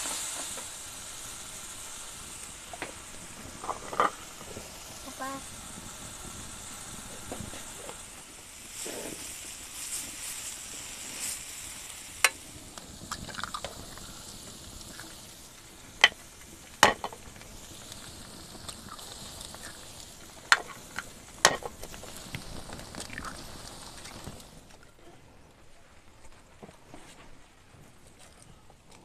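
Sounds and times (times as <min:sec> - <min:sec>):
vegetables sizzling in a frying pan: 0:00.0 - 0:25.0
eggs cracked against a pan: 0:12.2 - 0:14.1, 0:16.0 - 0:24.2.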